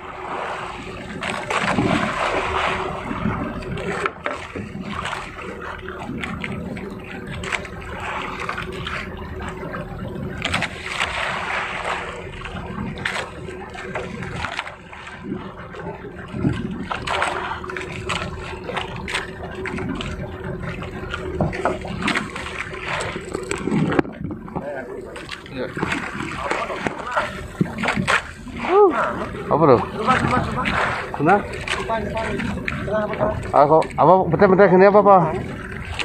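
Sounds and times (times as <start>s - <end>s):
boat engine running: 0.0s - 36.0s
water splashing against hull: 0.0s - 36.0s.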